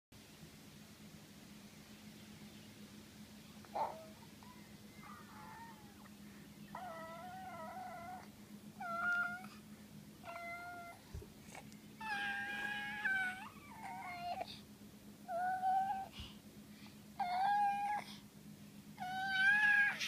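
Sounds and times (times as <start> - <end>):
baby squealing: 12.0 - 14.4, 19.1 - 20.0.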